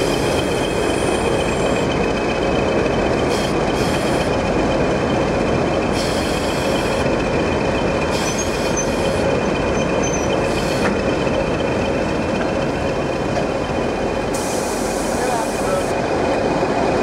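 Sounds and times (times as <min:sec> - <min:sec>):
diesel locomotive engine droning: 0:00.0 - 0:17.0.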